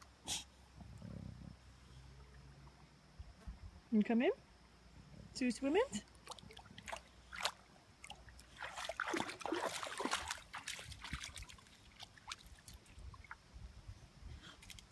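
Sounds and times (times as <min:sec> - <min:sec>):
dog splashing through water: 0:06.2 - 0:13.4.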